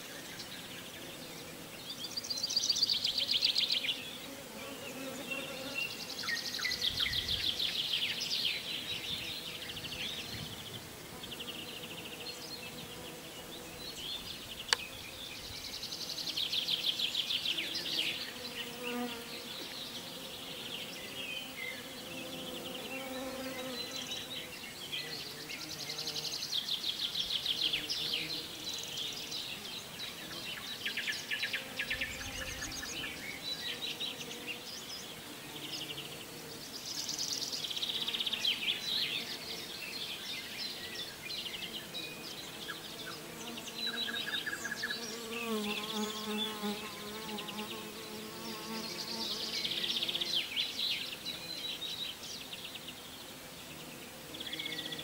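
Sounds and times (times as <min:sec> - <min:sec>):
songbirds trilling: 0:00.0 - 0:55.0
bees buzzing: 0:09.1 - 0:24.6, 0:44.6 - 0:50.4.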